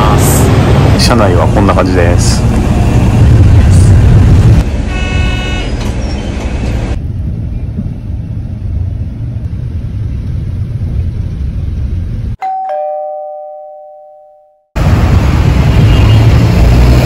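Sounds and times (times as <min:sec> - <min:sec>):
bus engine rumble: 0:00.0 - 0:12.4, 0:14.8 - 0:17.0
two-note ding-dong chime: 0:12.4 - 0:14.6.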